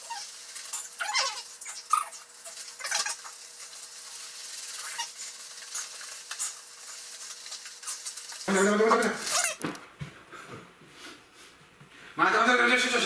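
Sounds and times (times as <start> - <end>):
wet squishing and rubbing: 0.0 - 9.7.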